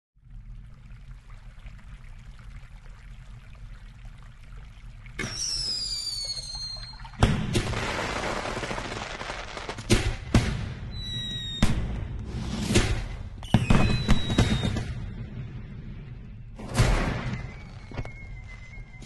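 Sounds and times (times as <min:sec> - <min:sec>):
fuse fizzing: 0:00.2 - 0:09.9
firework whistle falling in pitch: 0:05.2 - 0:07.2, 0:11.0 - 0:11.8, 0:13.4 - 0:14.9
firework crackling: 0:05.2 - 0:12.8
firework bangs: 0:05.2 - 0:15.3.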